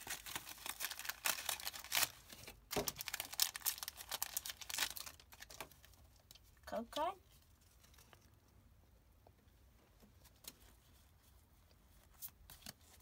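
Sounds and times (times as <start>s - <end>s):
foil wrapper crinkling and tearing: 0.0s - 6.4s.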